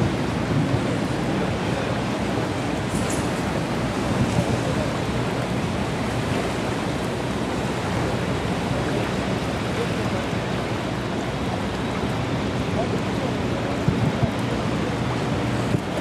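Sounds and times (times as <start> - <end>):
water rushing: 0.0 - 16.0.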